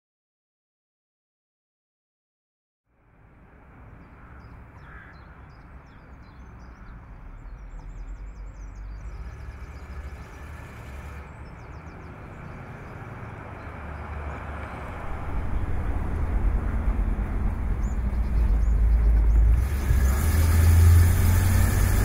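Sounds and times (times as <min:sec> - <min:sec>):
car engine rumbling: 0:07.2 - 0:22.0.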